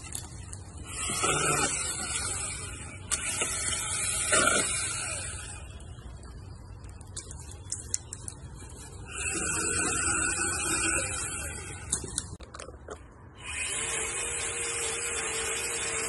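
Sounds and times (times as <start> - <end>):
cordless pole saw whining: 0.0 - 6.2, 9.0 - 12.4, 13.4 - 16.0.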